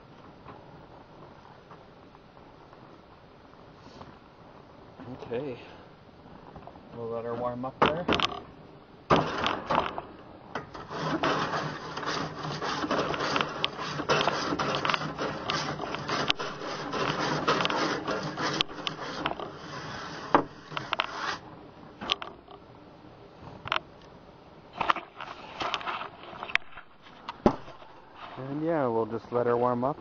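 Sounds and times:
grill brush scrubbing metal grates: 10.8s - 21.4s.

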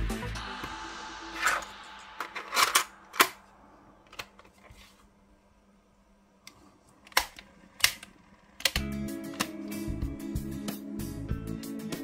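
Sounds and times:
cassette player plastic clicks: 7.1s - 9.6s.

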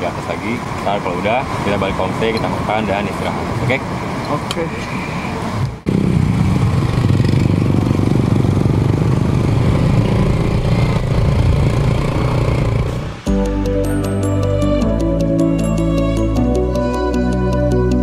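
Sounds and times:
small motorcycle engine running: 5.9s - 13.0s.

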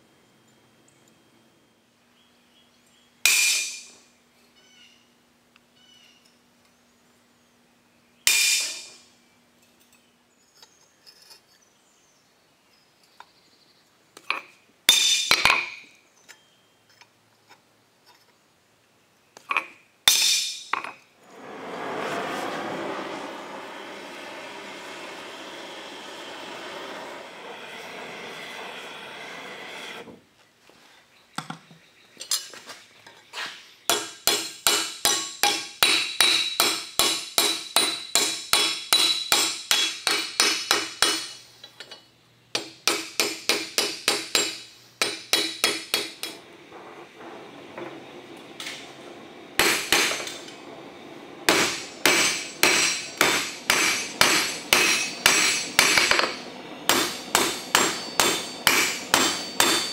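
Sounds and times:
hammer striking steel on anvil: 3.2s - 4.0s, 8.3s - 9.0s, 14.9s - 15.8s, 20.1s - 21.0s, 33.9s - 41.4s, 42.5s - 46.4s, 49.6s - 50.4s, 51.5s - 59.9s
gas torch hissing: 21.2s - 30.2s, 46.0s - 59.9s.

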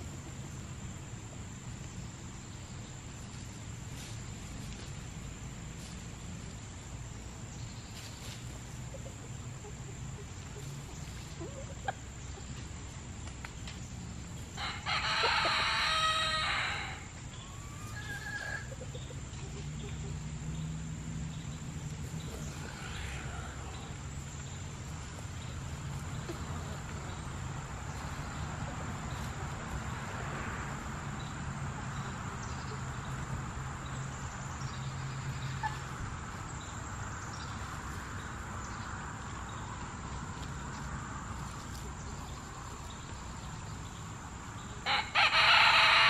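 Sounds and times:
insects chirring: 0.0s - 46.0s
chickens clucking: 7.9s - 16.0s, 17.3s - 20.5s, 21.7s - 30.2s, 35.3s - 46.0s.

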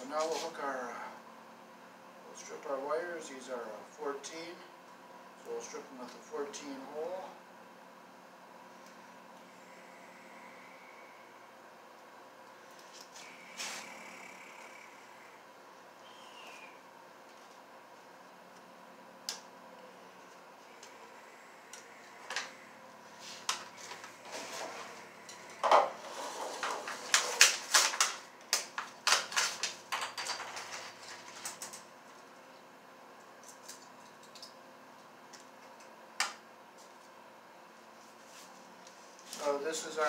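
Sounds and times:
small tools clicking and clattering: 26.6s - 31.8s, 33.4s - 34.6s.

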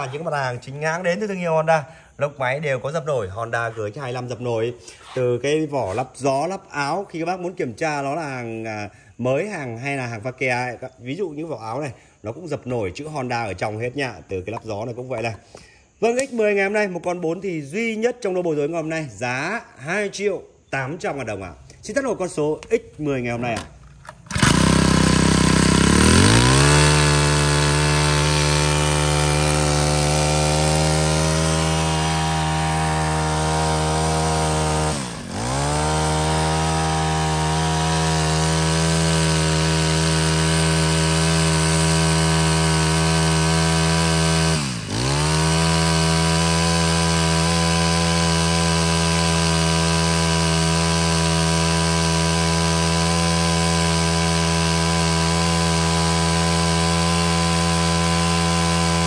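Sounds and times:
brush cutter engine running: 0.0s - 0.6s, 23.4s - 59.0s.

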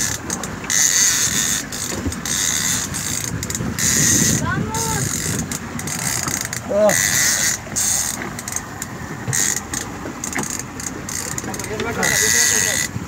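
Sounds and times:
fishing reel whirring: 0.0s - 13.0s
wind noise: 1.2s - 7.9s.

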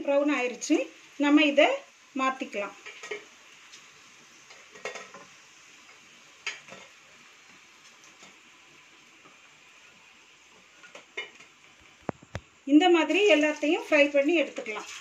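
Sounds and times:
hot oil sizzling: 0.0s - 15.0s
spatula knocking and scraping pan: 4.5s - 5.3s, 10.6s - 11.6s.

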